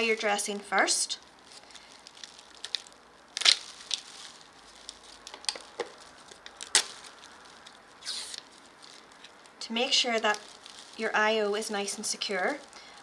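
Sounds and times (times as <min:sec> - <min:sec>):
film and paper crinkling: 0:00.0 - 0:13.0
film snapping: 0:02.0 - 0:04.1, 0:04.8 - 0:09.6.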